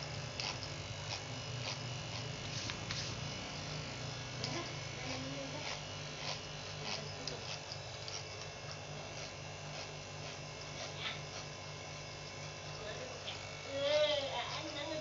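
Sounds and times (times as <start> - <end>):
electric hair clippers buzzing: 0.0 - 15.0.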